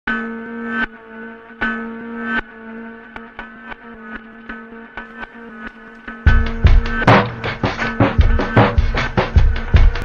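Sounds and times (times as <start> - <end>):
loud held chords: 5.4 - 10.0.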